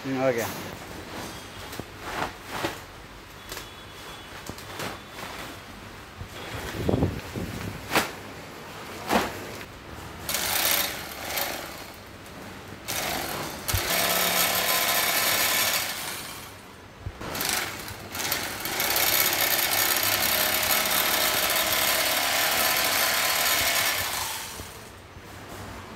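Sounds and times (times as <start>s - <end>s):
sewing machine stitching sack: 12.9s - 16.4s, 17.3s - 24.8s.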